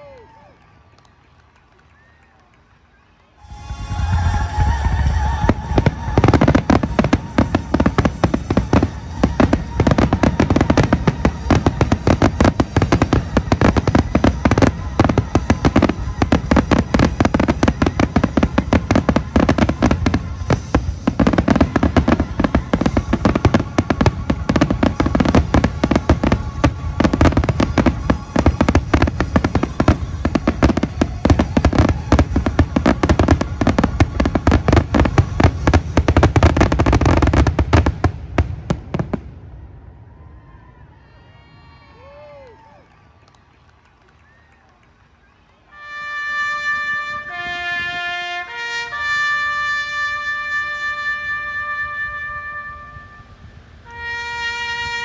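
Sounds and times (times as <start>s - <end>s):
fireworks bangs and pops: 3.4s - 39.3s.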